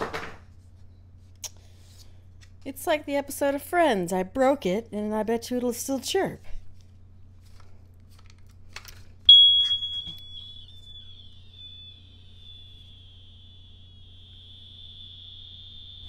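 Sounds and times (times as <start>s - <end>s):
smoke alarm high-pitched tone: 9.3s - 16.0s.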